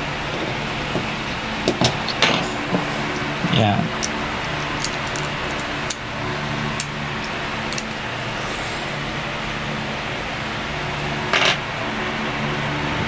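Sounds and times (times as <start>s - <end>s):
background rumble and hum: 0.0s - 13.0s.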